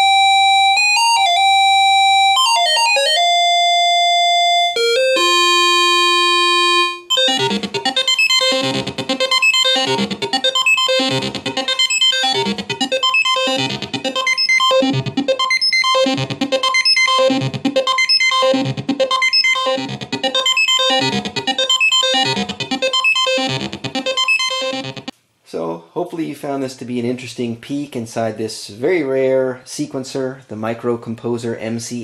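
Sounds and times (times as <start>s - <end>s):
high held synth tone: 3.4s - 25.1s
repeating synth pattern: 7.0s - 25.1s.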